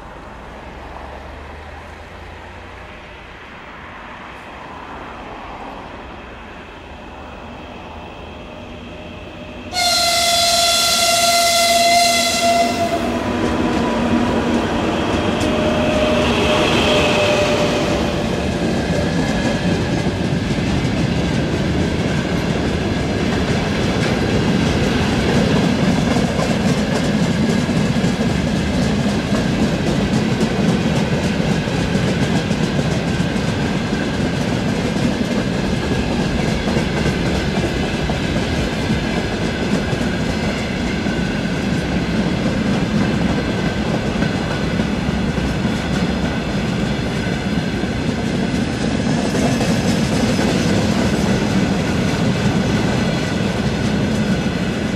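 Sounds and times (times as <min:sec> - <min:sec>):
freight train rumbling past: 0:00.0 - 0:54.9
wheels clattering on rails: 0:12.8 - 0:54.9.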